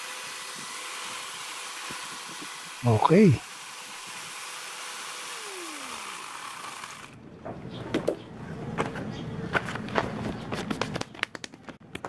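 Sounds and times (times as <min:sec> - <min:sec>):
angle grinder chainsaw whine: 0:00.0 - 0:07.2.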